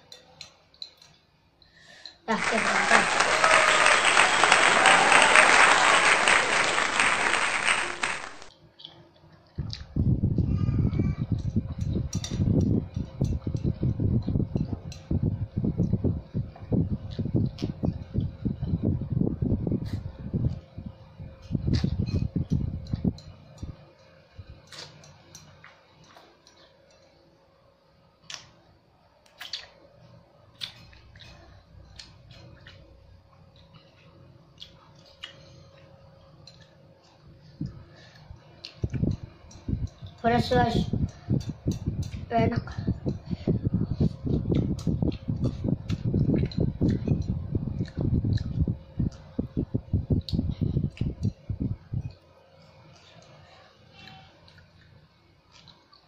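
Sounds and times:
chopsticks clicking against glass bowl: 0.1s - 1.2s, 22.1s - 27.1s, 38.6s - 40.3s
many hands clapping: 2.3s - 8.5s.

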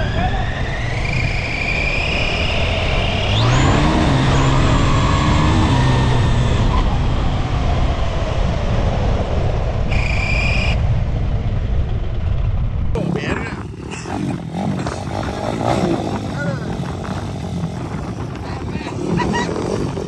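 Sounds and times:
motorcycle engine revving: 0.0s - 8.1s, 12.9s - 20.0s
wind rushing: 0.0s - 20.0s.

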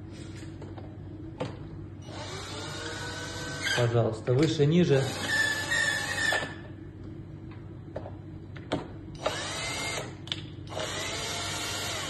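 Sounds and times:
cordless screwdriver running: 2.1s - 3.9s, 5.0s - 6.4s, 9.2s - 10.1s, 10.7s - 12.0s.

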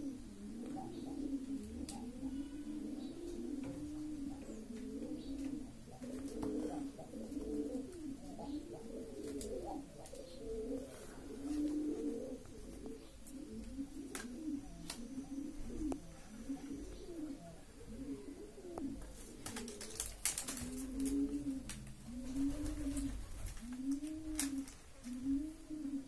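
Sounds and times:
pigeons cooing: 0.0s - 26.0s.

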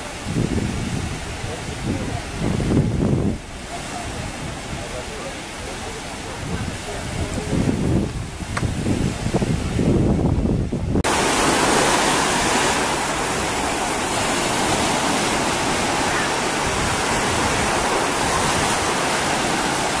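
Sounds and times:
wind rumble on microphone: 0.0s - 20.0s
sea waves breaking on sand: 11.0s - 20.0s.

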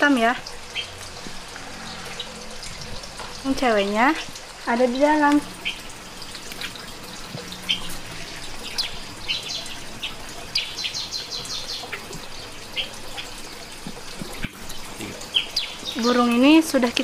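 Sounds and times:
small birds chirping: 4.2s - 17.0s.

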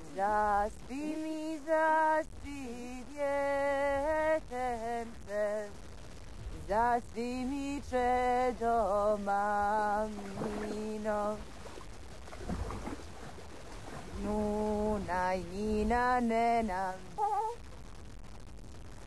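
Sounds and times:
woman singing unaccompanied: 0.0s - 5.8s, 6.6s - 11.6s, 14.0s - 17.6s
steady low hum: 0.0s - 19.0s.

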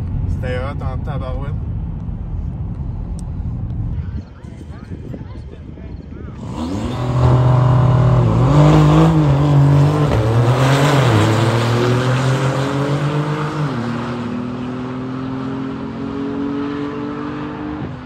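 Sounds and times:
drag racing cars accelerating: 6.4s - 18.0s.

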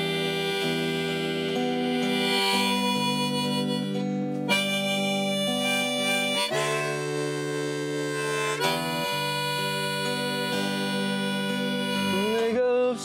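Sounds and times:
harmonica slow melody: 0.0s - 13.0s
strummed acoustic guitar chords: 0.0s - 13.0s.

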